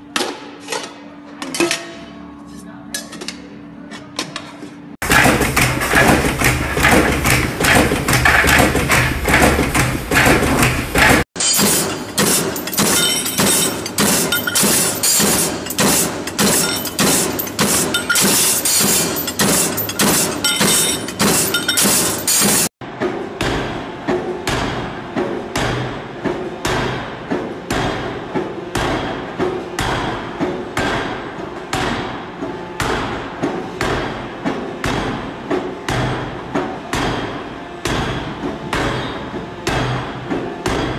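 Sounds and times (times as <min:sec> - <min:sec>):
machinery hum: 0:02.0 - 0:40.9
machine clattering: 0:05.0 - 0:22.7
press metallic clatter: 0:05.0 - 0:22.7
forging hammer blows: 0:05.0 - 0:28.1.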